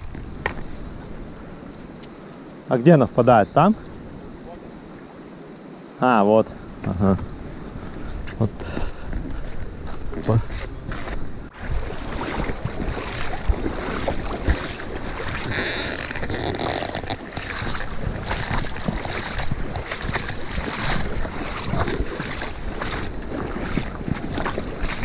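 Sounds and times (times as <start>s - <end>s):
wind buffeting microphone: 0.0s - 25.0s
river water rushing over stones: 11.5s - 25.0s.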